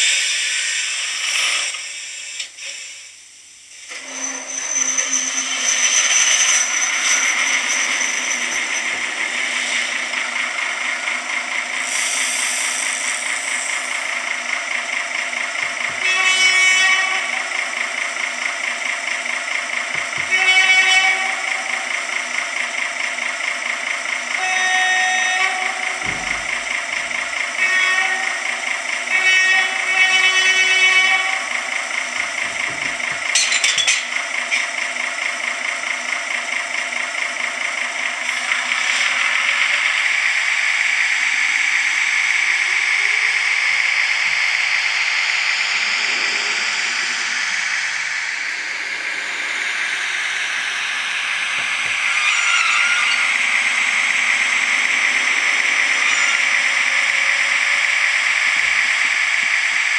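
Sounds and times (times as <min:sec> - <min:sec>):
model locomotive hiss: 0:00.0 - 0:06.6, 0:11.7 - 0:22.1
diesel engine idling through speaker: 0:00.0 - 0:59.9
locomotive horn blasts: 0:15.9 - 0:17.7, 0:20.0 - 0:22.0, 0:24.3 - 0:31.9
faint rising whine: 0:43.9 - 0:58.4.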